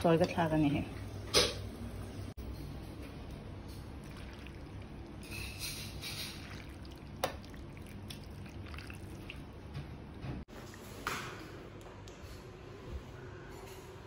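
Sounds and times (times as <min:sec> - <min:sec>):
broth pouring and trickling: 0:03.8 - 0:09.6.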